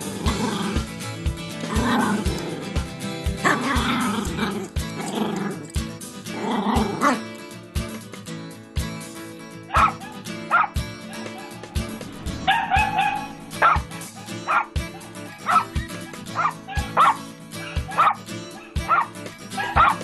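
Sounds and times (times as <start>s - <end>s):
background music with steady beat: 0.0s - 20.0s
small dog yapping: 9.7s - 11.5s, 14.5s - 17.2s, 17.9s - 20.0s.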